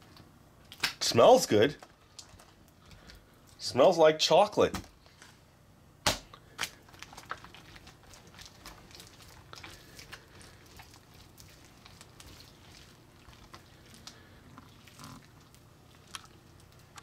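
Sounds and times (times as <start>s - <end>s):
hand squelching slime: 6.6s - 17.0s.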